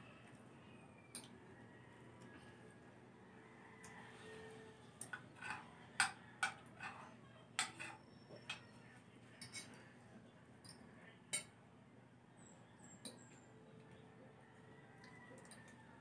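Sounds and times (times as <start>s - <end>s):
tableware taps and clinks: 5.0s - 7.0s, 7.6s - 8.7s, 9.4s - 9.8s, 10.6s - 11.5s.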